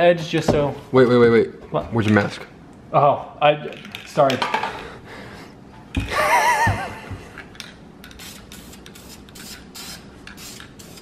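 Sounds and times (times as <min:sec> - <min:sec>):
spray can hissing: 0:08.1 - 0:11.0.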